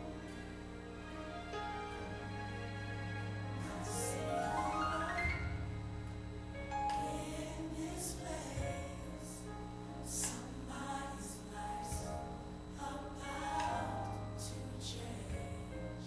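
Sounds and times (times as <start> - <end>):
gospel choir singing: 0.0 - 5.8, 6.8 - 16.0
sustained low notes: 0.0 - 9.6.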